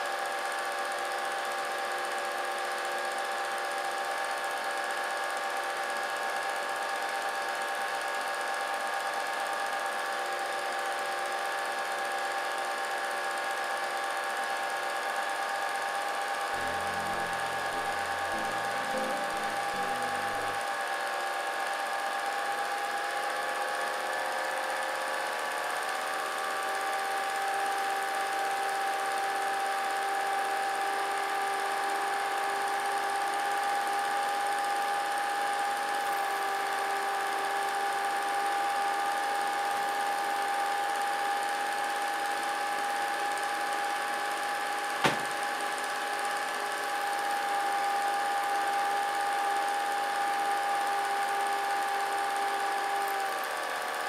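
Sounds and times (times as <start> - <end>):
film projector whirring: 23.8 - 54.0.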